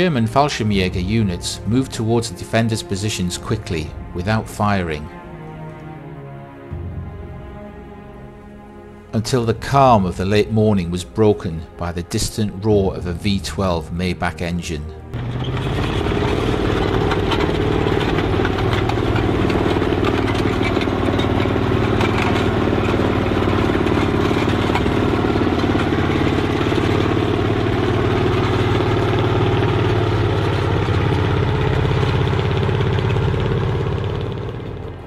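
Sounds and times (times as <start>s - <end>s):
heavy tank engine idling: 15.1s - 35.0s.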